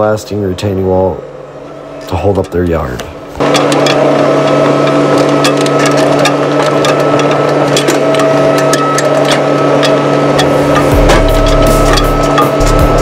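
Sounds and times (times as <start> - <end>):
steady whine: 0.0 - 13.0
excavator diesel engine running: 3.3 - 13.0.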